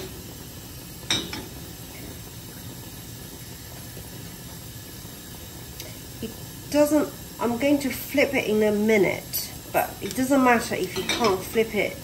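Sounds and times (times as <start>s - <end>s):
egg sizzling in a pan: 0.0s - 12.0s.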